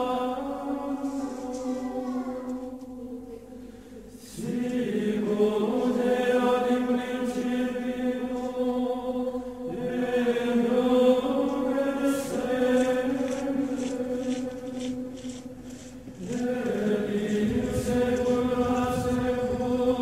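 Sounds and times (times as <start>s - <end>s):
slow choral chant: 0.0s - 20.0s.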